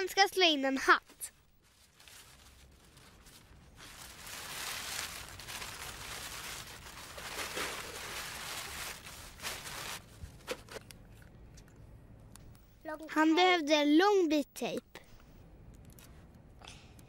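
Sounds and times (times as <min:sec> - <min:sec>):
wrapping paper rustling: 0:01.6 - 0:10.8.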